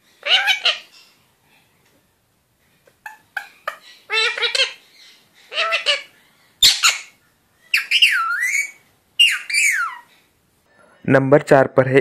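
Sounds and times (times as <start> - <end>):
parakeet calling: 0.1 - 1.2, 2.8 - 10.3
parakeet harsh squawk: 0.2 - 1.0, 3.0 - 4.9, 5.5 - 10.1.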